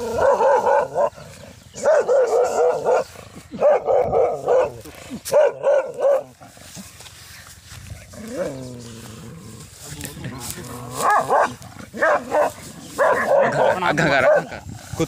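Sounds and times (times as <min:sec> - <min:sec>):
dog barking: 0:00.1 - 0:01.2, 0:01.8 - 0:06.4, 0:11.0 - 0:14.5.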